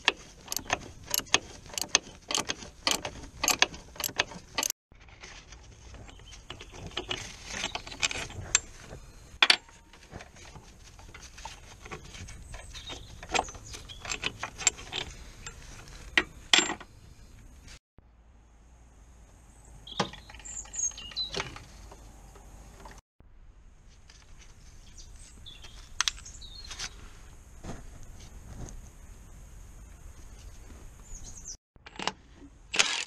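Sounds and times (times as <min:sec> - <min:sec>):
metal tools clicking and clinking: 0:12.5 - 0:16.9.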